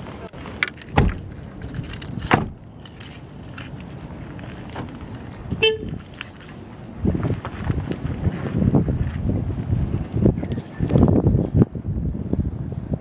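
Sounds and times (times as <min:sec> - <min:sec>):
keys jangling: 0:00.7 - 0:06.6
car doors shutting: 0:00.8 - 0:02.6
car horn chirp: 0:05.5 - 0:06.0.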